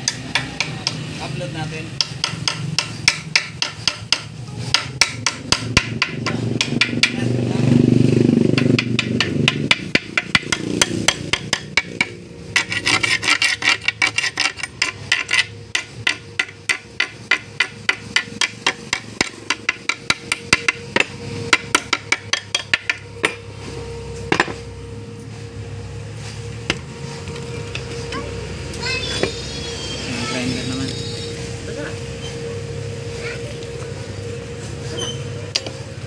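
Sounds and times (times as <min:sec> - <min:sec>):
hammer tapping on metal: 0:00.0 - 0:01.1, 0:01.9 - 0:07.4, 0:08.5 - 0:23.4.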